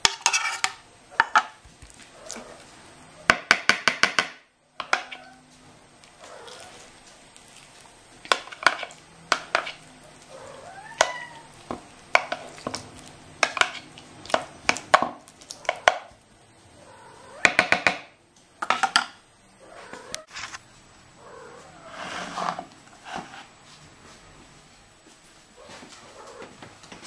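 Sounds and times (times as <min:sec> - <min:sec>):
cat meowing: 0:10.3 - 0:11.6.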